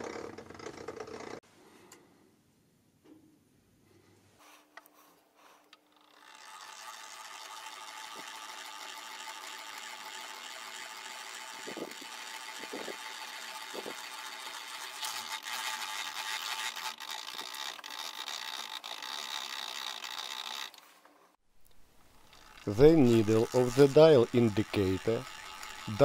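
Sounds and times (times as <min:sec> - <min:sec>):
milling machine whir: 0:22.0 - 0:26.0.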